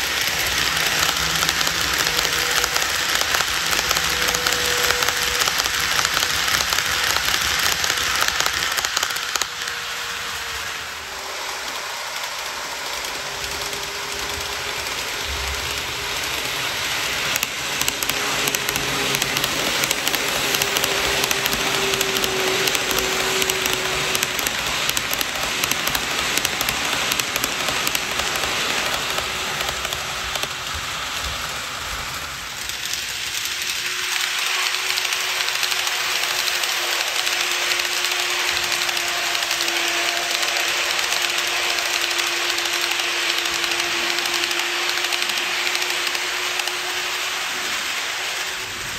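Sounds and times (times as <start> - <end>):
fast clicking: 0.0 - 10.4, 11.5 - 48.5
motor hum: 0.0 - 32.9
model train wheels rolling: 0.0 - 48.9.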